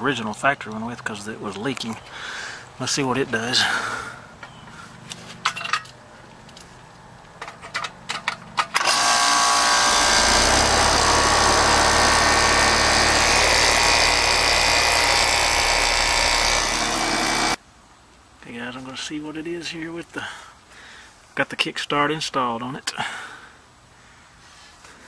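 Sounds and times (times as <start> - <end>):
heat pump unit running: 8.8 - 17.6
low compressor hum: 9.3 - 17.6.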